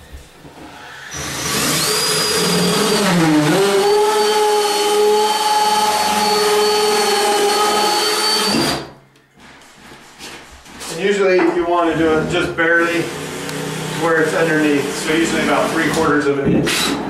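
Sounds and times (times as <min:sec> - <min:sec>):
cordless drill cutting pipe: 0:00.7 - 0:08.9, 0:12.8 - 0:17.0.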